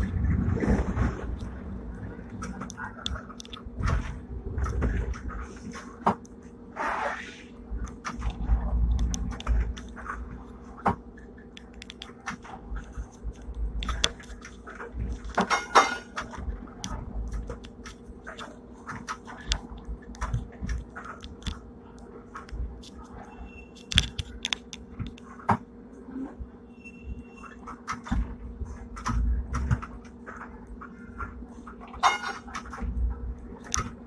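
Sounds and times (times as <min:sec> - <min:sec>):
low rumble: 0:00.0 - 0:11.5
steady hum: 0:00.0 - 0:34.0
tram clicks knocks and rattles: 0:07.9 - 0:21.6, 0:23.8 - 0:25.6.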